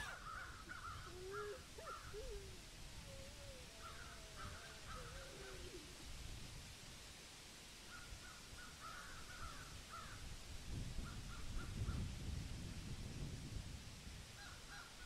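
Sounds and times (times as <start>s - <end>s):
crows cawing: 0.0s - 2.3s, 3.5s - 5.7s, 8.8s - 10.2s.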